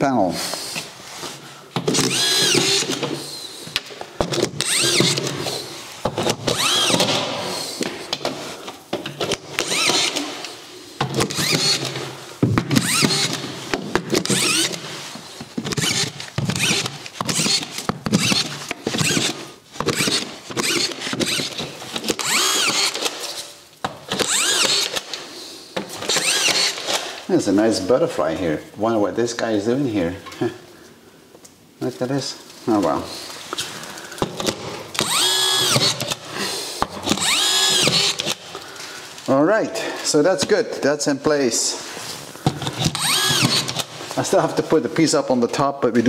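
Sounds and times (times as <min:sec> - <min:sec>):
screw gun motor whining: 0:01.9 - 0:03.0, 0:04.5 - 0:05.6, 0:06.2 - 0:07.1, 0:09.6 - 0:10.3, 0:11.2 - 0:11.9, 0:12.8 - 0:13.4, 0:14.2 - 0:14.8, 0:15.6 - 0:23.1, 0:24.1 - 0:25.0, 0:26.0 - 0:27.0, 0:35.0 - 0:36.2, 0:37.0 - 0:38.4, 0:42.6 - 0:43.9.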